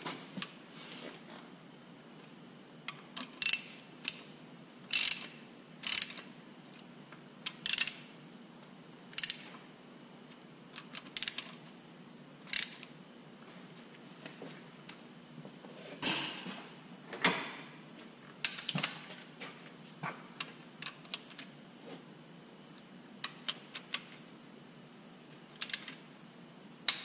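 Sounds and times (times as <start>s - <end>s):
ratchet wrench clicking: 3.4s - 4.3s, 4.9s - 6.3s, 7.5s - 8.1s, 9.2s - 9.5s, 11.1s - 11.6s, 12.5s - 12.9s.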